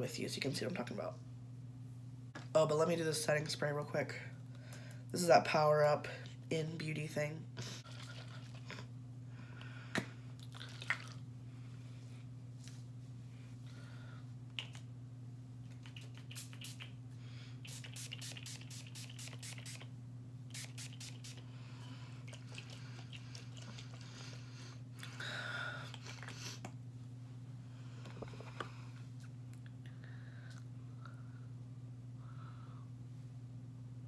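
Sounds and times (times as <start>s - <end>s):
steady low hum: 0.0s - 34.0s
spray bottle spritzes: 16.0s - 16.9s, 17.6s - 19.9s, 20.5s - 21.4s.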